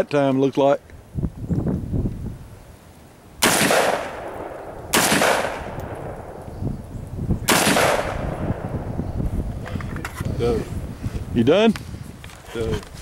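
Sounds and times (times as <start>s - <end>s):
gunshots echoing: 3.4s - 6.4s, 7.4s - 9.0s.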